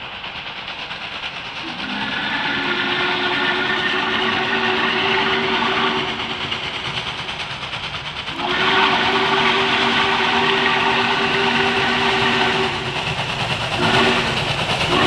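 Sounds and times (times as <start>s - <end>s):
train rumble and hiss: 0.0s - 15.0s
steam locomotive whistle chord: 1.6s - 6.4s, 8.4s - 13.0s, 13.8s - 15.0s.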